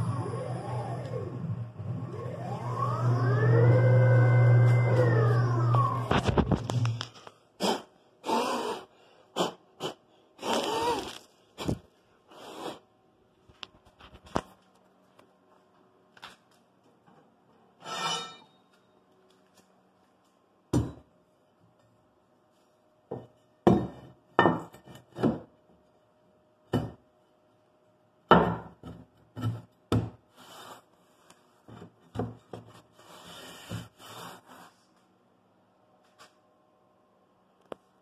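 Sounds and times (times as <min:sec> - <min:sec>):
metal scraping on wood: 0:17.8 - 0:18.5.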